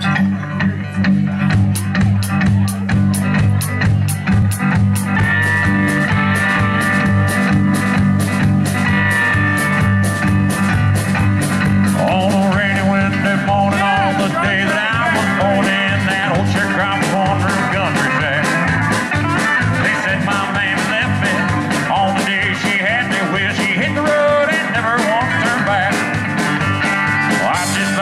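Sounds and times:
country band playing: 0.0 - 28.0
man singing: 11.8 - 26.4, 27.1 - 28.0.

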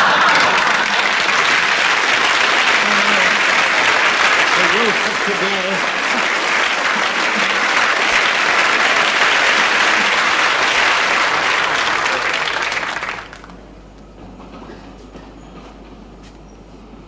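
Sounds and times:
studio audience applauding: 0.0 - 13.6.

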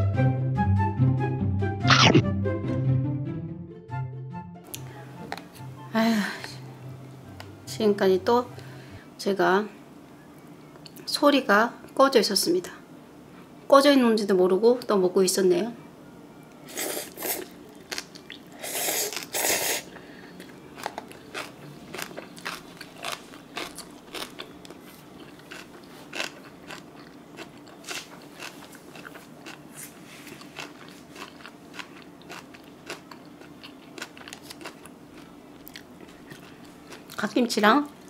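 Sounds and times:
crunchy chewing: 16.7 - 37.3
noodle slurping: 18.6 - 19.9.

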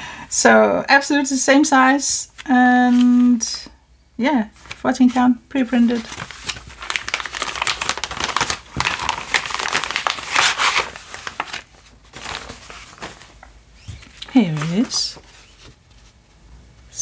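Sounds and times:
paper rustling: 4.6 - 16.3
plastic bag crinkling: 5.8 - 15.8.

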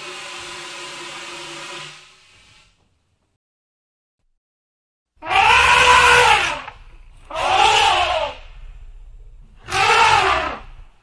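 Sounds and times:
elephant trumpeting: 5.2 - 8.6, 9.6 - 10.8
low rumble: 6.7 - 11.0.

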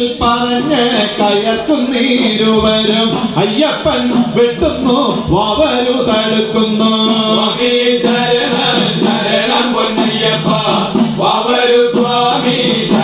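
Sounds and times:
hand drums beating: 0.0 - 13.0
men chanting in chorus: 5.5 - 13.0.

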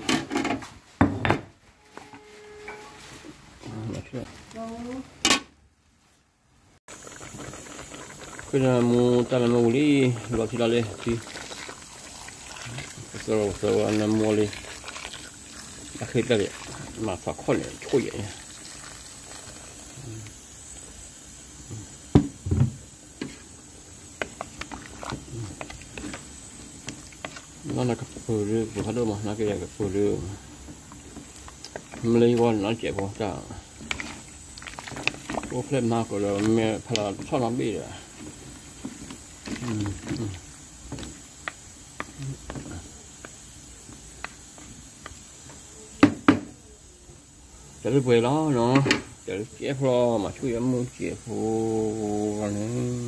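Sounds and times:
wooden spatula stirring thick sauce: 7.0 - 18.5, 23.2 - 43.4.

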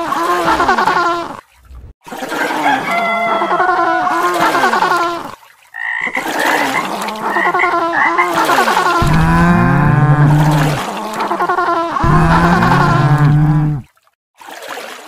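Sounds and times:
deep warbling call: 9.0 - 11.2, 12.0 - 13.8.

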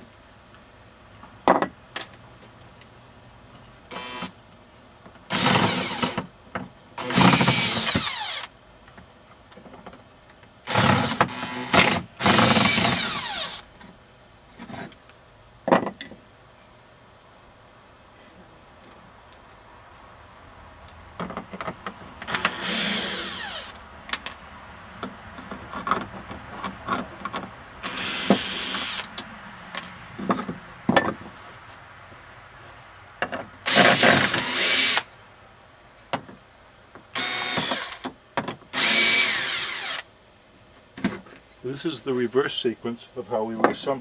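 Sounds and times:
cordless screw gun: 5.3 - 6.2, 7.0 - 8.5, 10.7 - 13.6, 22.3 - 23.8, 27.8 - 29.1, 33.7 - 35.1, 37.2 - 38.1, 38.7 - 40.0.

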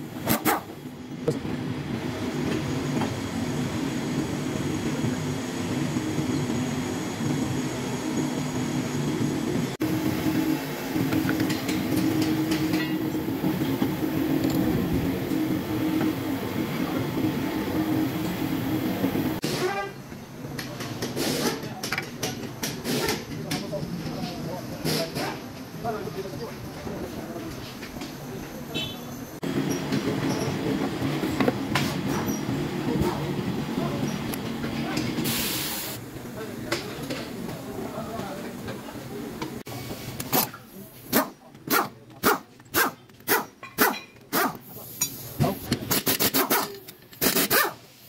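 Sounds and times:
workshop machinery rumbling: 0.0 - 42.7
machinery droning: 1.0 - 19.4.

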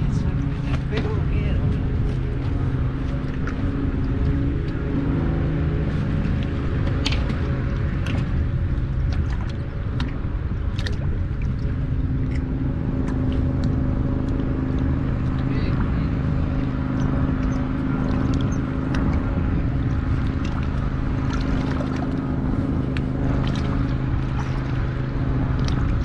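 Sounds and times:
wind buffeting microphone: 0.0 - 26.0
tackle clicking in aluminum boat: 6.2 - 15.5, 16.6 - 26.0.

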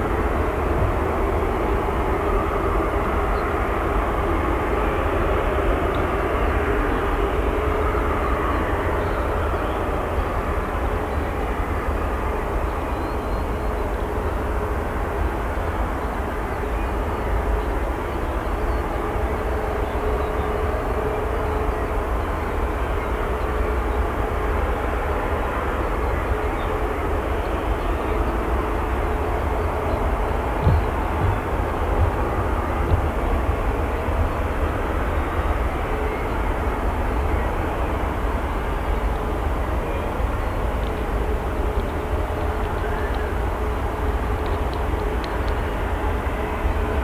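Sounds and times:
jet engine rumble: 27.3 - 35.4.

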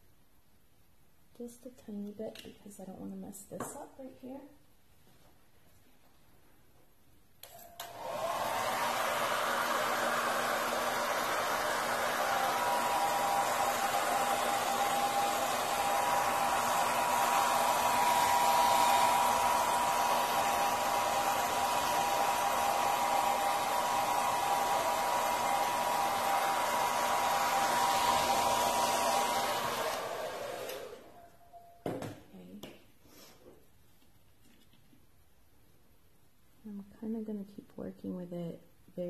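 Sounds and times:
hair dryer whining: 7.4 - 31.2.

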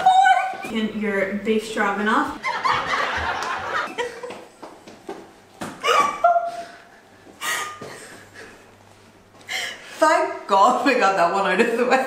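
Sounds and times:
women laughing: 2.4 - 4.6, 5.8 - 6.8.

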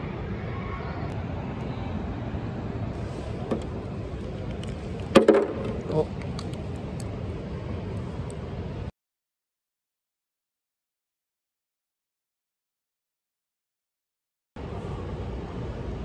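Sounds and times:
low background rumble: 0.0 - 8.9
knocks and rattles: 5.0 - 6.0.

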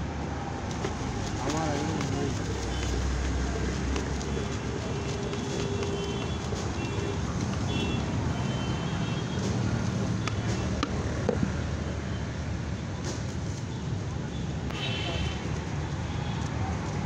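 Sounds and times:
street traffic: 0.0 - 17.0
puffed rice rattling in plastic bucket: 0.7 - 8.2.

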